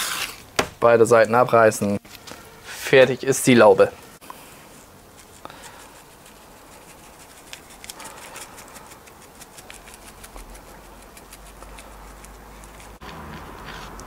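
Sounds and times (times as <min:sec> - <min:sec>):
spice shaker ticking: 0:05.2 - 0:13.0.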